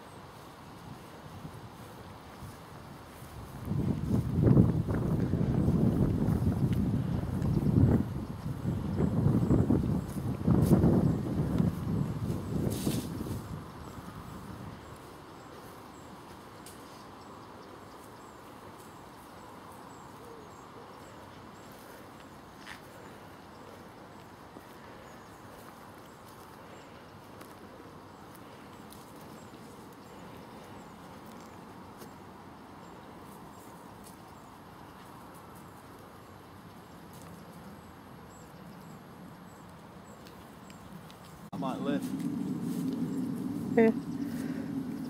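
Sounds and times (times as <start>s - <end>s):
steady outdoor hiss: 0.0s - 45.0s.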